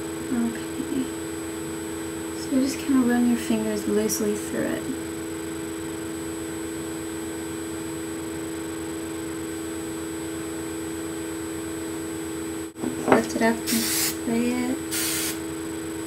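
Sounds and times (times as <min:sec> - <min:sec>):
electrical hum: 0:00.0 - 0:16.0
light hiss: 0:13.7 - 0:14.2, 0:14.9 - 0:15.4.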